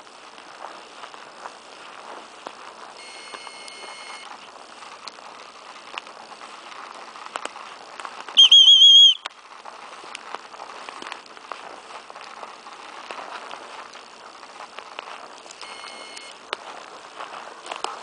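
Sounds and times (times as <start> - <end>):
footsteps through undergrowth: 0.0 - 18.0
faint whistle-like tone: 3.0 - 4.2, 8.3 - 9.3, 15.6 - 16.3
dog whistle trill: 8.4 - 9.3.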